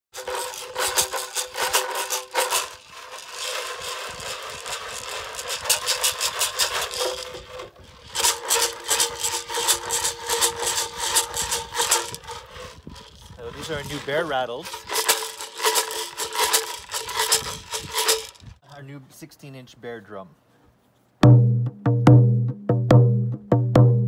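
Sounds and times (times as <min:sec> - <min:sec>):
rawhide rattles shaken: 0:00.2 - 0:18.6.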